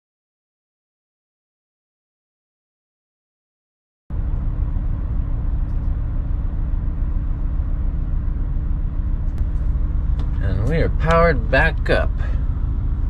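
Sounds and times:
engine running with low rumble: 0:04.1 - 0:13.0.

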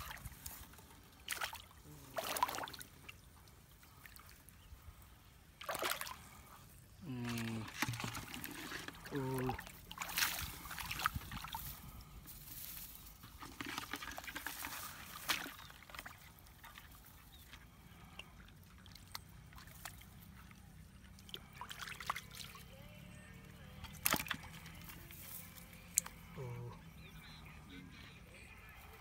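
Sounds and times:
hands splashing in muddy water: 0:00.0 - 0:03.3, 0:05.6 - 0:06.5, 0:07.1 - 0:11.9, 0:13.1 - 0:17.0, 0:21.0 - 0:22.7, 0:23.6 - 0:26.4.

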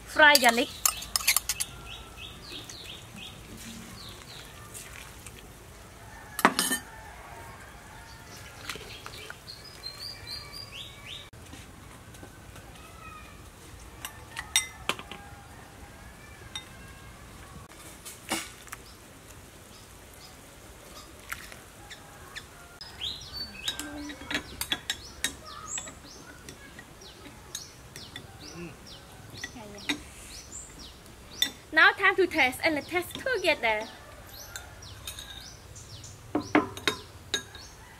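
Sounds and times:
birds chirping: 0:00.0 - 0:05.1, 0:07.0 - 0:11.4, 0:18.8 - 0:37.9
metal spoons clinking on pots: 0:00.2 - 0:01.8, 0:06.4 - 0:06.9, 0:14.4 - 0:15.1, 0:23.6 - 0:28.3, 0:34.4 - 0:35.6, 0:36.4 - 0:37.7.

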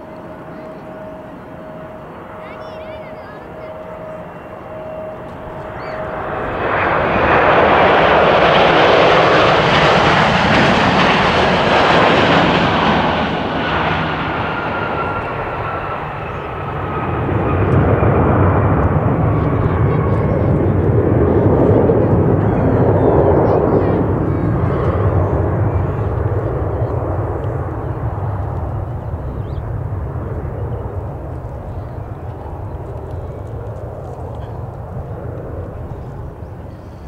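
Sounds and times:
jet engines roaring: 0:00.0 - 0:37.0.

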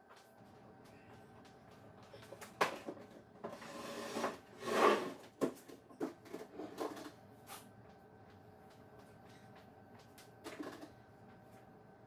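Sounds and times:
tabletop scraping on wooden floor: 0:03.5 - 0:05.3.

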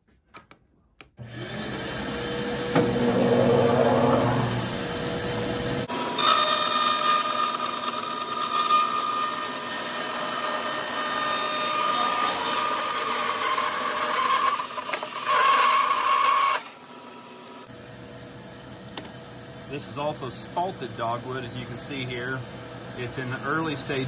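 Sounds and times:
bandsaw running free: 0:01.2 - 0:17.7
bandsaw cutting whine: 0:01.2 - 0:24.0.

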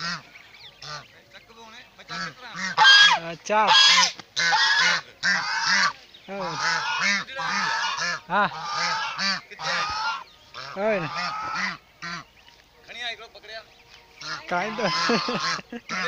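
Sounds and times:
geese honking: 0:00.0 - 0:16.0.

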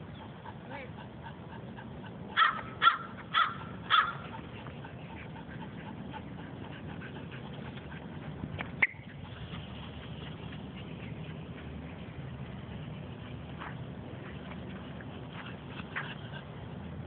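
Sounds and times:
small dog yapping: 0:02.4 - 0:04.4.

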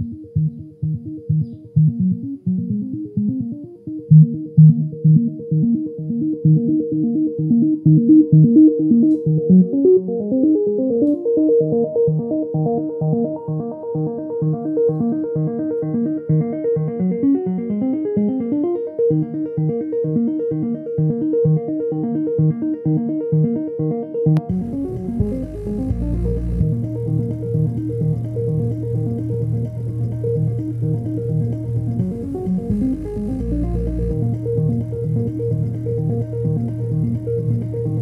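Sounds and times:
electronic music with synth notes: 0:00.0 - 0:38.0.

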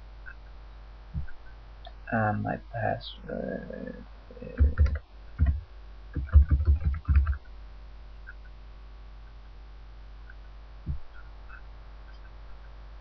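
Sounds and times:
keyboard keystrokes: 0:04.6 - 0:05.6, 0:06.2 - 0:07.4.

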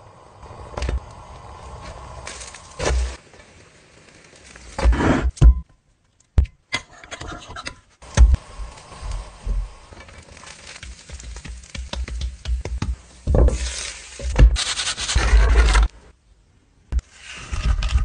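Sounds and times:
faint hiss: 0:08.0 - 0:15.0.

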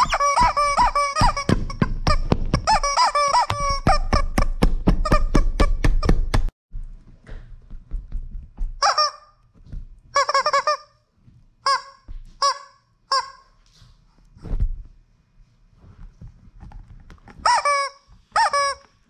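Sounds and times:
rubber chicken toy squawking: 0:00.0 - 0:05.9, 0:08.8 - 0:09.3, 0:10.1 - 0:10.9, 0:11.6 - 0:13.5, 0:17.4 - 0:18.9.

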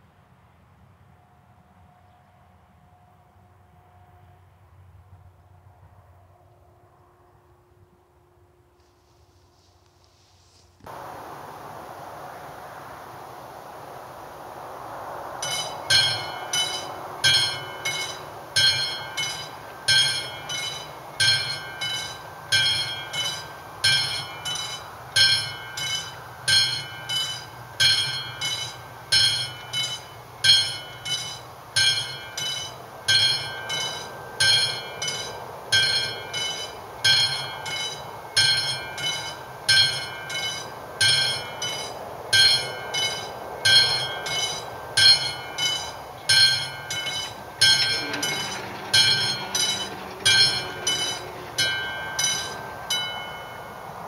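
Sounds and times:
level crossing bell ringing: 0:15.4 - 0:53.8.

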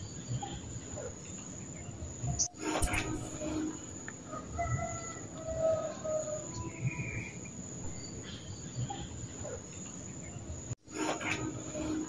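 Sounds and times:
high-pitched insect trill: 0:01.8 - 0:09.1.

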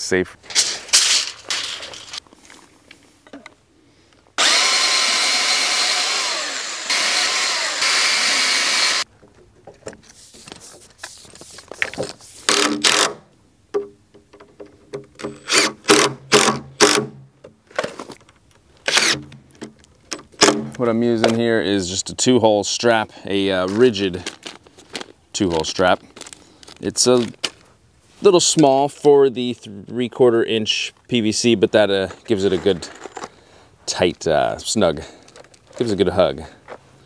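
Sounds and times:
cordless drill driving screws: 0:04.4 - 0:09.1, 0:18.9 - 0:19.2.

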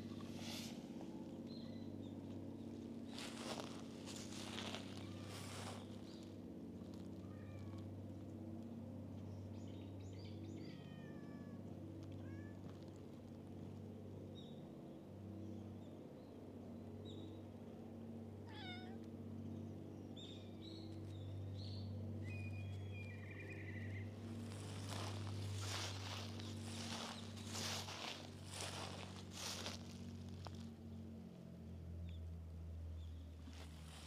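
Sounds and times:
faint low hum: 0:00.0 - 0:34.0
cats meowing: 0:07.2 - 0:07.9, 0:10.7 - 0:12.8, 0:18.4 - 0:19.1.

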